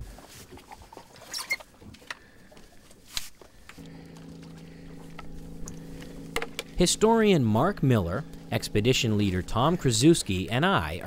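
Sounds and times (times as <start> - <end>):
steady low hum: 3.4 - 11.0.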